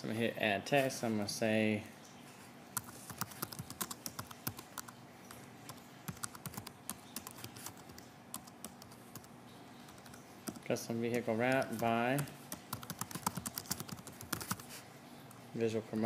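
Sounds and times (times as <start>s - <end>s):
computer keyboard typing: 2.8s - 14.7s.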